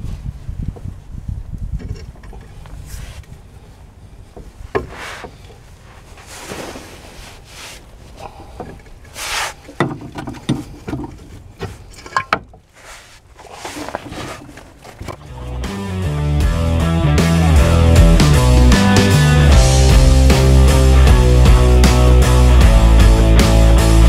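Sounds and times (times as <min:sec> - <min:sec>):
handling noise near microphone: 0:00.0 - 0:15.3.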